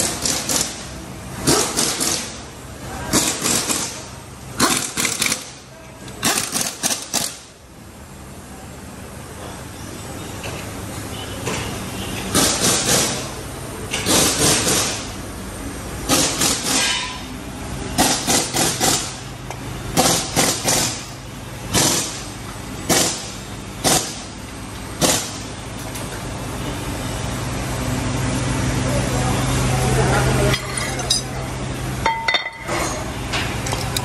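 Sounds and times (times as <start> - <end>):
air impact wrench bursts: 4.6 - 5.6, 6.2 - 7.5, 14.0 - 15.2, 16.1 - 17.3, 19.9 - 22.3, 22.9 - 24.3.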